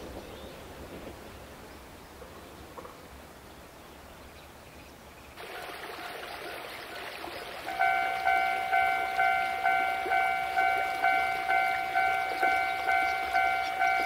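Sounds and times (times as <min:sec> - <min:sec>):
level crossing bell clanging: 0:07.6 - 0:14.0.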